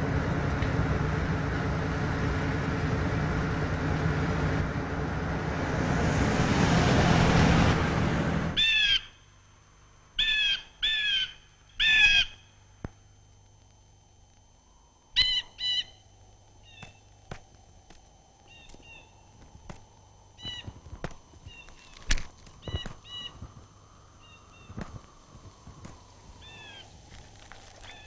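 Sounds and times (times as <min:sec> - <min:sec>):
car driving past: 0:02.9 - 0:08.6
bird calls: 0:08.6 - 0:09.2, 0:10.2 - 0:12.5, 0:15.1 - 0:16.0, 0:16.6 - 0:17.1, 0:18.4 - 0:19.8, 0:20.4 - 0:25.7, 0:26.3 - 0:26.9, 0:27.8 - 0:28.0.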